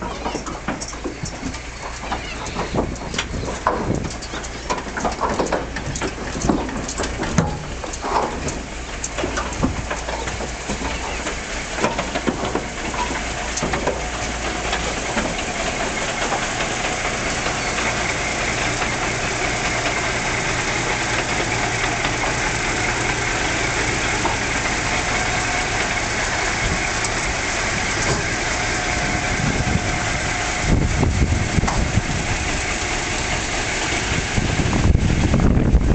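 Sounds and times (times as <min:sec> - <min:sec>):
diesel engine idling: 0:00.0 - 0:35.9
wind buffeting microphone: 0:11.8 - 0:35.9.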